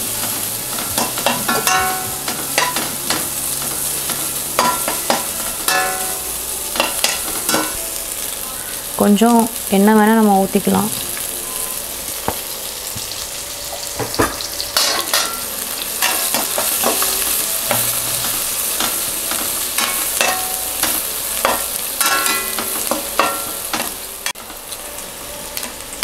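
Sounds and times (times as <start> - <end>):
onions sizzling in hot oil: 0.0 - 26.0
metal spoon scraping a pan: 0.2 - 6.2.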